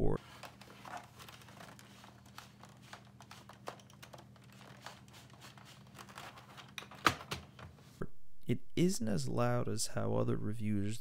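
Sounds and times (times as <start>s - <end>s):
plastic keyboard case creaking: 0.2s - 7.7s.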